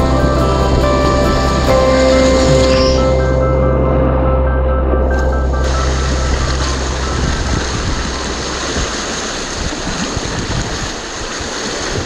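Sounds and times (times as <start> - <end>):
background music: 0.0 - 8.8
wind buffeting microphone: 4.9 - 12.0
river whitewater rushing: 5.5 - 12.0.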